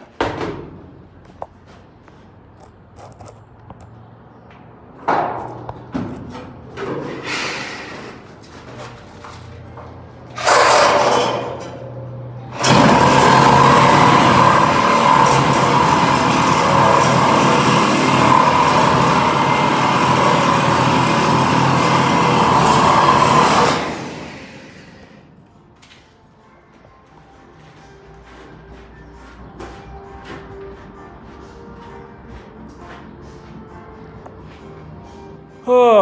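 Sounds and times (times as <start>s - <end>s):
angle grinder on steel: 12.5s - 25.1s.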